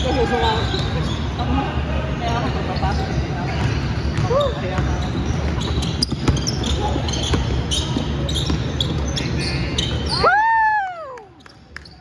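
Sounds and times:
basketball bouncing on court: 3.5 - 9.3.

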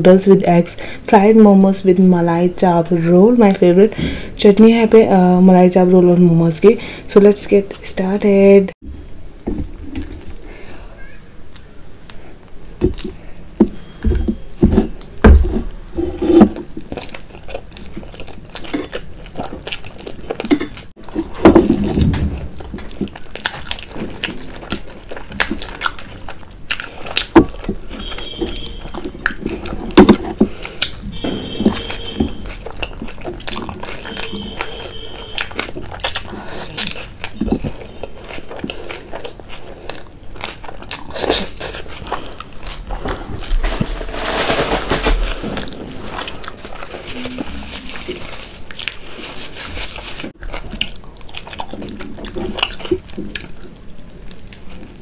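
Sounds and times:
chewing with wet mouth noises: 16.7 - 43.5, 45.5 - 55.0.

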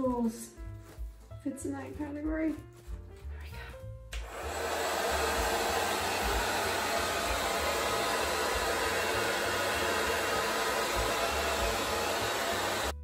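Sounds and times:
hair dryer blowing air: 4.2 - 13.0.

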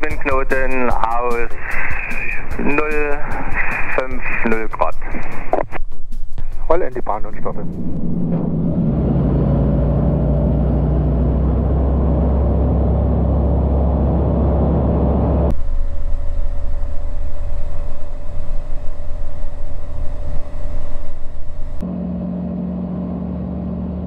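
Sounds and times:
gusty wind buffeting: 1.3 - 21.8
propeller aircraft engine: 1.5 - 4.1, 7.6 - 24.0.

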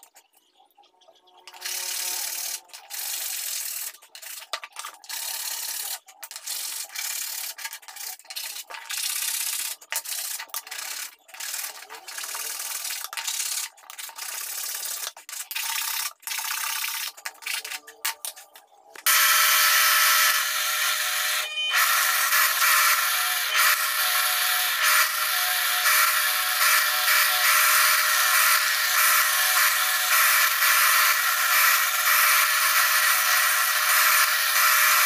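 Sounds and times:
file rasping on wood: 19.1 - 35.0.

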